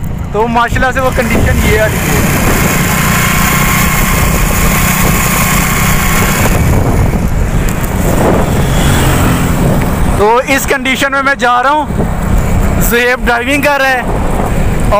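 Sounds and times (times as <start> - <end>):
motorcycle engine running: 0.0 - 10.6
wind rushing over microphone: 0.0 - 14.9.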